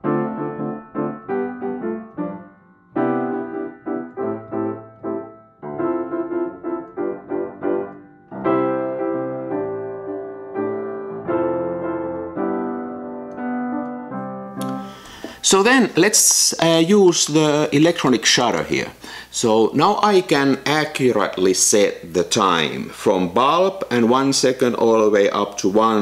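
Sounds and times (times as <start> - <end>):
gentle piano melody: 0.0 - 15.4.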